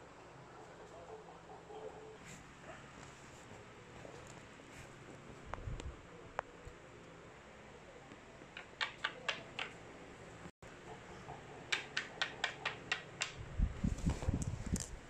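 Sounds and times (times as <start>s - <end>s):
plastic toy tapping on table: 8.6s - 9.8s, 11.7s - 13.4s.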